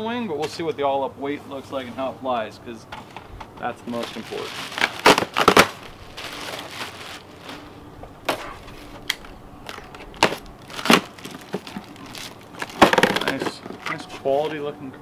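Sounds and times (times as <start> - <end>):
plastic bag crinkling: 3.6 - 7.9, 8.5 - 14.2.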